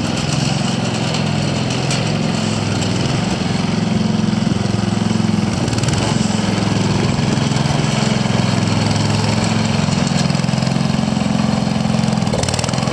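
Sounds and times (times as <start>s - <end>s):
tractor engine running: 0.0s - 12.9s.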